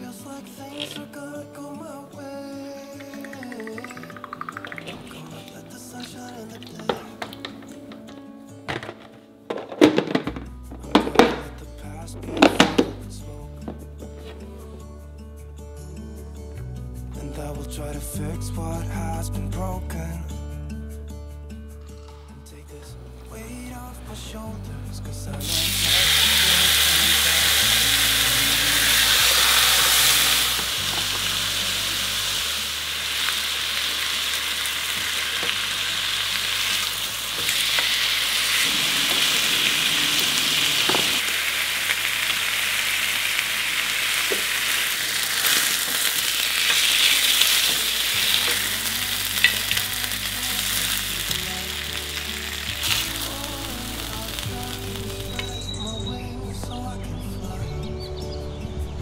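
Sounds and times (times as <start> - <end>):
meat sizzling in a pan: 25.4 - 55.6.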